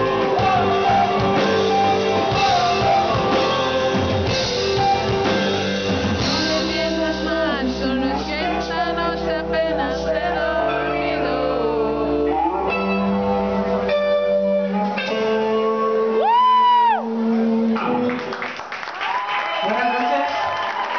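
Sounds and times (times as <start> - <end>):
low bass: 0.0 - 17.8
electric guitars holding notes: 0.0 - 18.5.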